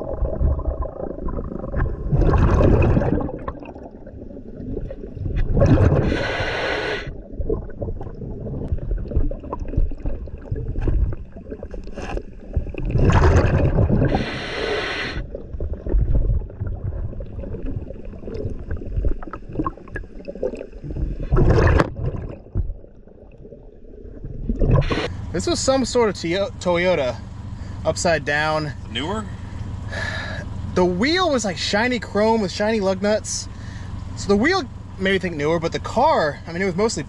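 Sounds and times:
exhaled bubbles: 0.0 - 25.1
low rumble: 0.0 - 37.0
diver breathing through regulator: 5.8 - 7.2, 14.0 - 15.4, 24.8 - 25.3, 29.2 - 30.5, 33.5 - 34.0.

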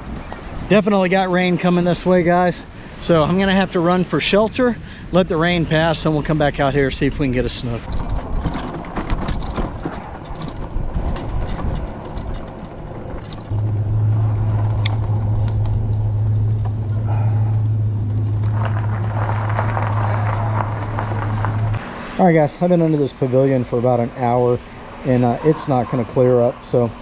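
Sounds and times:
wind noise: 4.5 - 21.8
bike rattling clicks: 7.9 - 13.7
steady low hum: 13.5 - 21.8.

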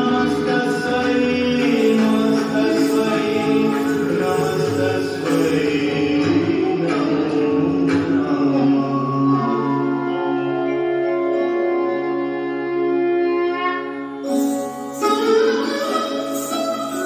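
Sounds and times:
devotional hymn sung over music: 0.0 - 10.0.

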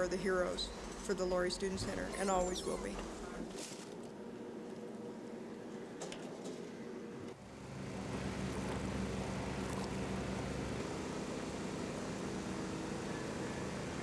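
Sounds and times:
engine drone: 7.3 - 14.0.

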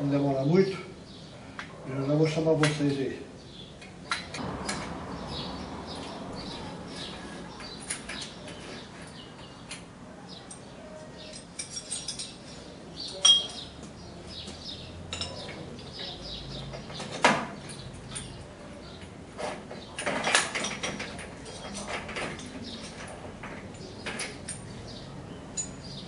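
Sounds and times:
metal parts clinking and clicking: 11.3 - 12.4.

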